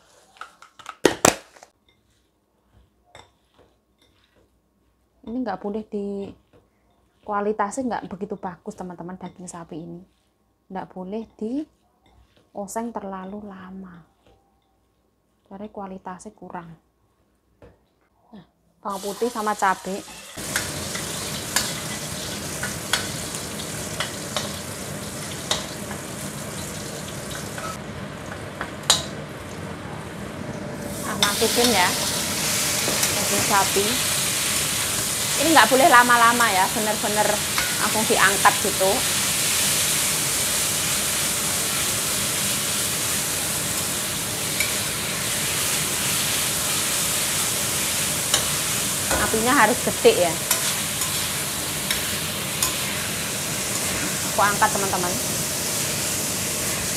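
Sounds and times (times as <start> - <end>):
garlic sizzling in hot oil: 18.9 - 56.9
metal spatula scraping wok: 19.8 - 27.8, 31.0 - 54.9.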